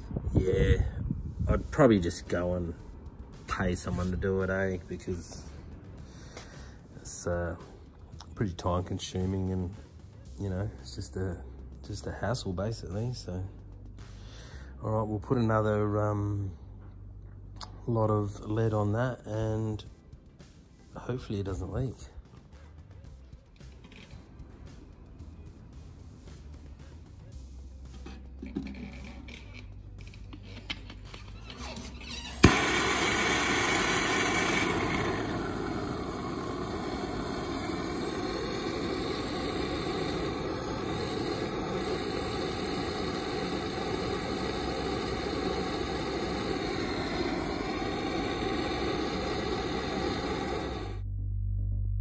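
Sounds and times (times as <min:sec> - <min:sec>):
gas torch hissing: 0:00.0 - 0:09.7, 0:28.2 - 0:51.0
gas torch lighting click: 0:29.2 - 0:51.0.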